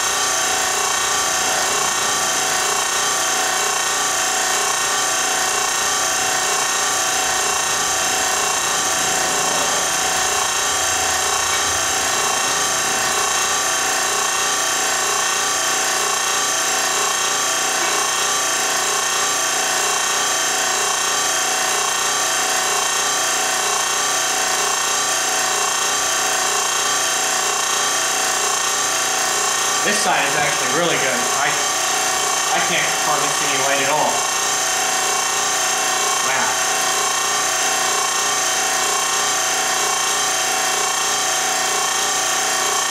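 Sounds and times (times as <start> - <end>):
motor whirring: 0.0 - 20.6.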